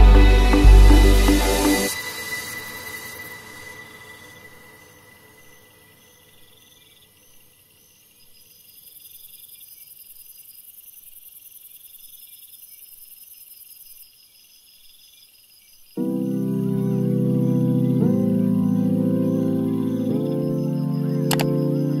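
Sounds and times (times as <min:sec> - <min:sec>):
high hiss: 0:00.0 - 0:05.8
insect chirping: 0:01.9 - 0:22.0.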